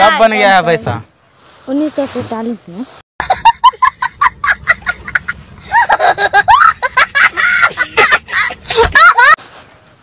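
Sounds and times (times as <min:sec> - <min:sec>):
man laughing hard: 0:03.2 - 0:09.4.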